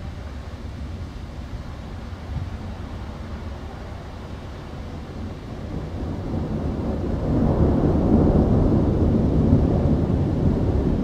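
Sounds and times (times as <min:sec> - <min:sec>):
distant thunder rumbling: 0:05.7 - 0:11.0.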